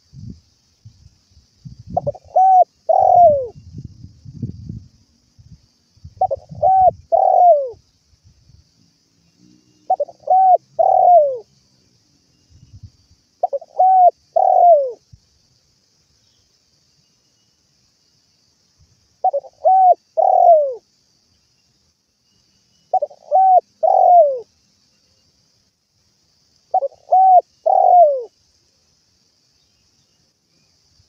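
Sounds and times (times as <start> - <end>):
dove cooing: 2.0 - 3.5, 6.2 - 7.8, 9.9 - 11.5, 13.4 - 15.0, 19.2 - 20.8, 22.9 - 24.5, 26.7 - 28.3.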